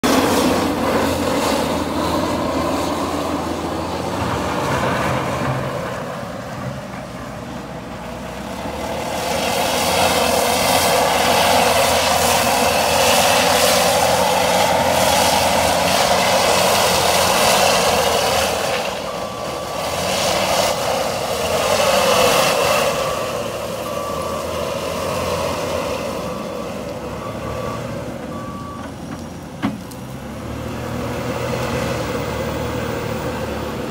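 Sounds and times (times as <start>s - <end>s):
diesel loader engine revving: 0.0s - 33.9s
reversing alarm beeps: 17.0s - 29.0s.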